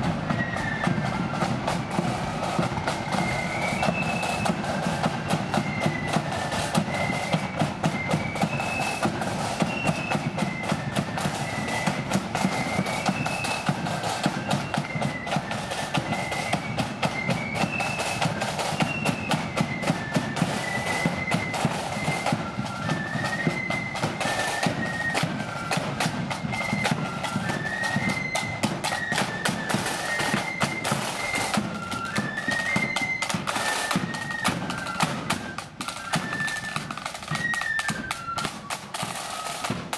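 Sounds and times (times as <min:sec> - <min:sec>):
flute melody: 0:00.0 - 0:39.9
side drums: 0:00.0 - 0:39.9.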